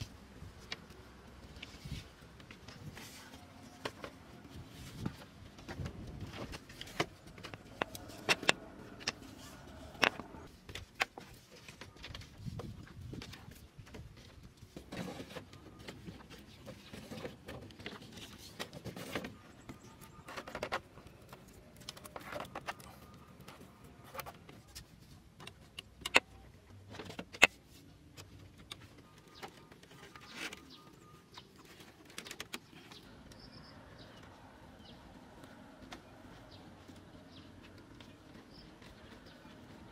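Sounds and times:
bamboo poles knocking: 5.7s - 11.3s
faint birdsong: 11.4s - 39.9s.

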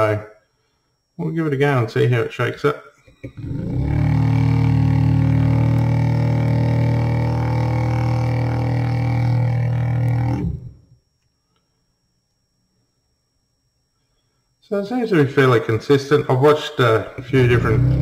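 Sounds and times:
vortex mixer motor humming: 3.1s - 11.0s, 17.0s - 18.0s.

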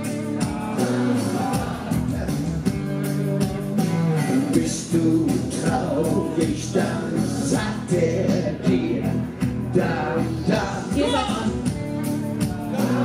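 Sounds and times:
pop backing music with beat: 0.0s - 13.0s
singers through loudspeakers: 4.3s - 11.7s, 12.4s - 13.0s.

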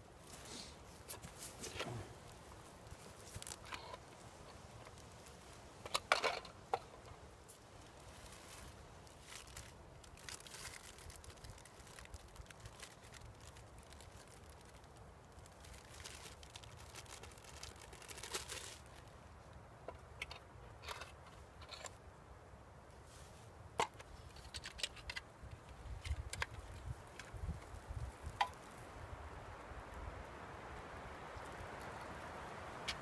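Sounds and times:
plastic zip bag crinkling: 8.1s - 19.1s.

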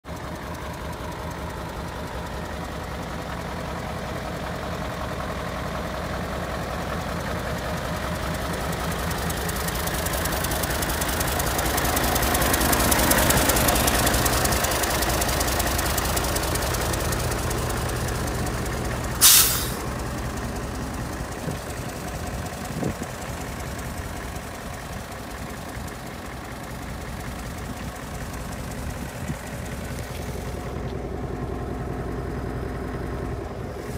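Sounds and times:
diesel engine idling: 0.0s - 33.9s
air brake hiss: 19.2s - 19.8s.

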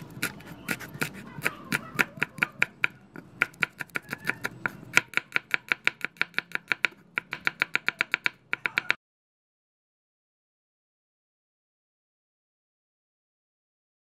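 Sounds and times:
cleaver chopping on wooden board: 0.2s - 9.0s.

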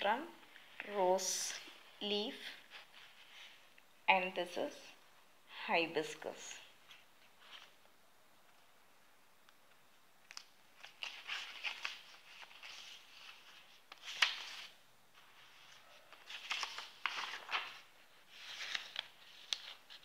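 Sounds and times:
paper rustling and crinkling: 6.8s - 7.9s, 10.2s - 20.0s.

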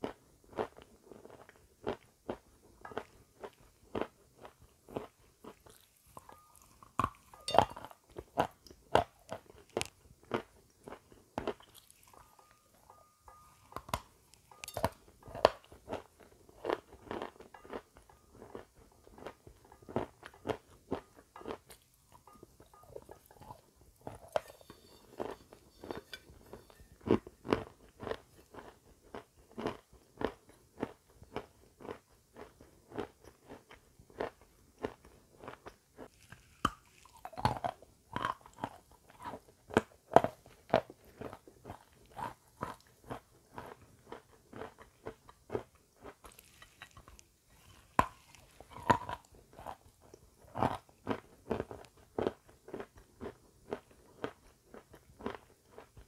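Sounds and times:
crunching bites and chewing: 0.0s - 12.5s, 13.6s - 56.0s.

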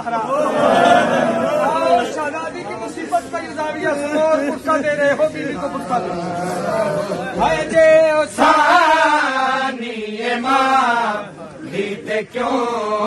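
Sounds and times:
men chanting a lament: 0.0s - 13.0s.

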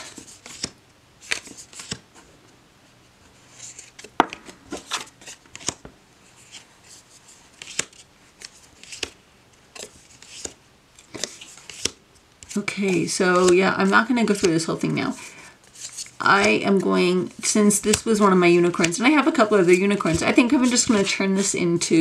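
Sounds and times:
cards sliding rustles: 0.0s - 2.3s, 3.3s - 14.6s, 15.2s - 16.9s
cards tapping down: 4.0s - 5.9s.

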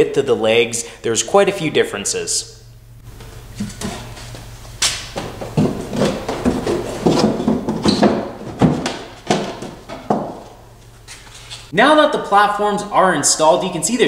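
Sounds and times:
wooden knocks and scrapes: 5.2s - 11.7s.

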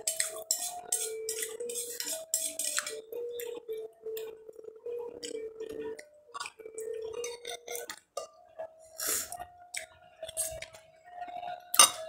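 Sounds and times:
spoon clinking: 11.7s - 12.0s.

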